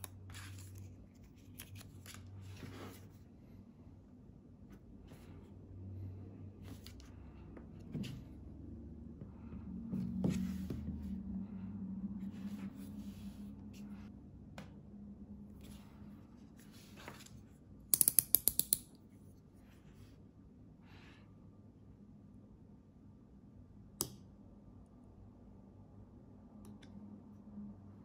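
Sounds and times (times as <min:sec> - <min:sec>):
low hum: 0:00.6 - 0:17.6.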